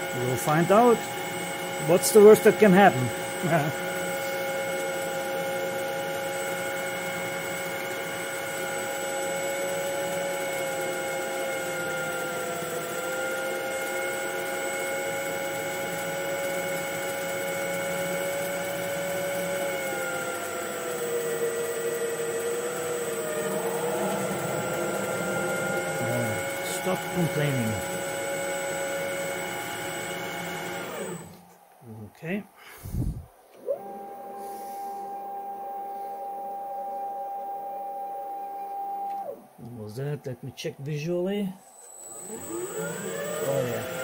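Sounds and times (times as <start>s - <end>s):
lathe spindle whine: 0.0s - 31.6s, 32.8s - 44.0s
rough cutting noise: 9.8s - 31.5s.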